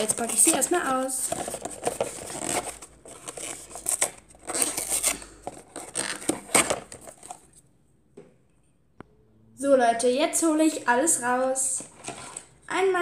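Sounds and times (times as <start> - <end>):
cardboard box being opened: 0.0 - 7.4.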